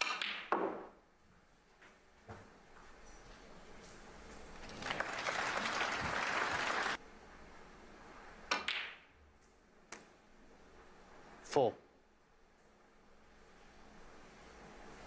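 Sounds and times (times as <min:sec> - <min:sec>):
audience applause: 0:04.6 - 0:07.0
snooker ball click: 0:08.5 - 0:09.0.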